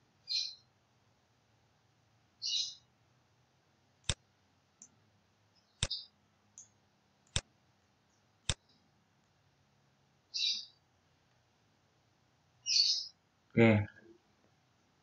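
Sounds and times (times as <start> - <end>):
high chirp: 10.3 - 10.8, 12.6 - 13.2.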